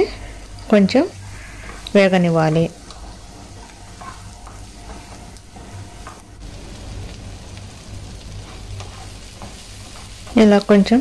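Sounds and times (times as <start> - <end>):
onions sizzling in a pan: 0.0 - 11.0
wooden spatula scraping a pan: 1.0 - 6.2, 8.2 - 11.0.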